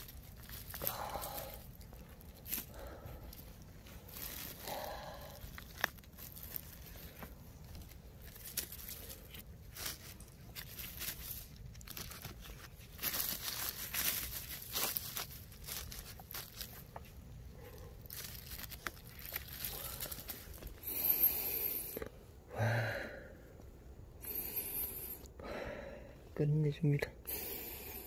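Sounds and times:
dry leaves rustling and crunching: 0.0s - 21.5s.

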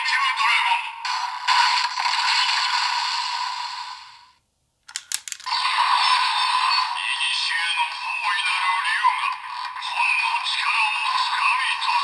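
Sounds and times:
plastic clicks: 4.8s - 5.5s.

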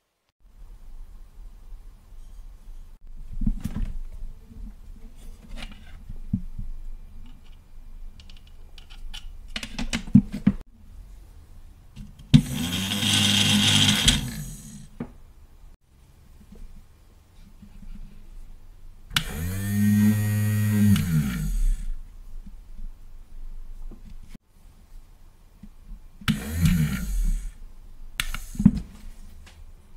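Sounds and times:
plastic parts clicking: 8.2s - 10.2s.

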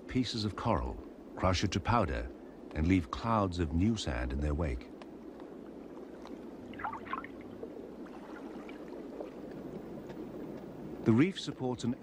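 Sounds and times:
faint bubbling: 0.6s - 11.3s
underwater watery wash: 4.0s - 12.0s.

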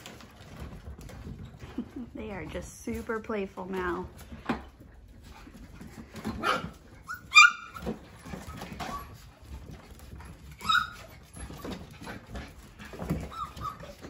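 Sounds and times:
puppies yipping: 6.2s - 14.0s.

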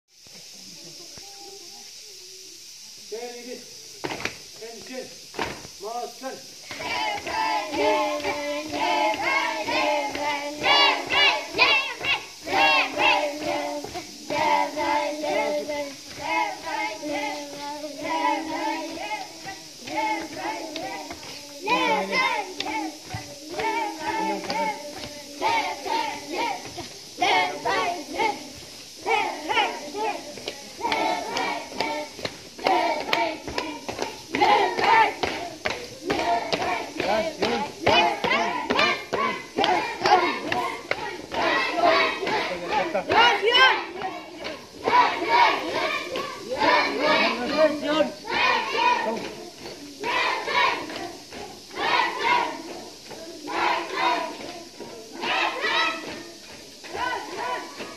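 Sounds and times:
children chanting a prayer: 0.4s - 57.9s
sharp hand claps: 30.4s - 41.5s.

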